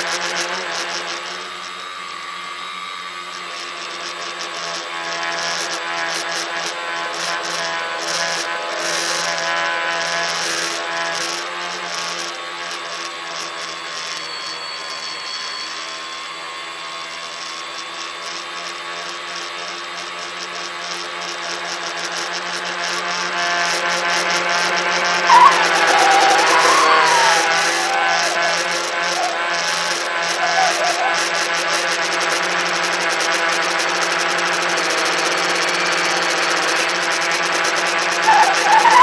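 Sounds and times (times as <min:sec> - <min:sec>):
drone motors whining: 0:00.0 - 0:39.0
loud wavering tone: 0:13.4 - 0:18.2, 0:22.8 - 0:39.0.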